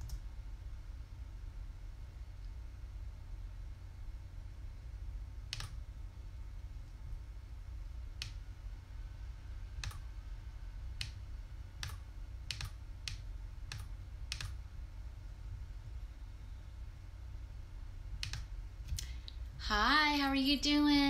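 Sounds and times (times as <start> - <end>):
steady low hum: 0.0 - 21.0
computer clicks: 5.5 - 5.8, 11.8 - 14.6, 18.2 - 19.2.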